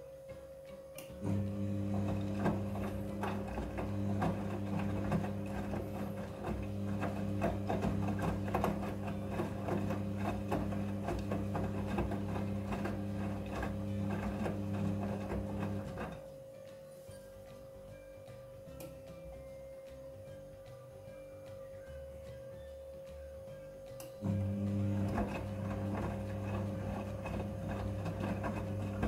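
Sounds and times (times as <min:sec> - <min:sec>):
faint background music: 0:00.0 - 0:29.0
washing machine running: 0:01.1 - 0:16.3, 0:24.2 - 0:29.0.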